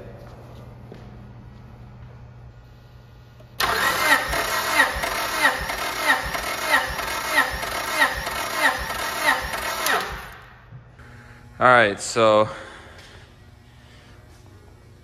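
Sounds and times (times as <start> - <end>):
starter motor cranking engine: 3.6 - 10.4.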